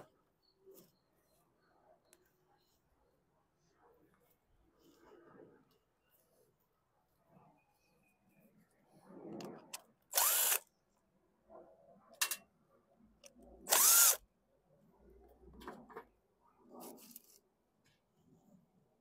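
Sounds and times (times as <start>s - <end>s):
impact driver motor whine: 10.1s - 10.6s, 13.7s - 14.2s.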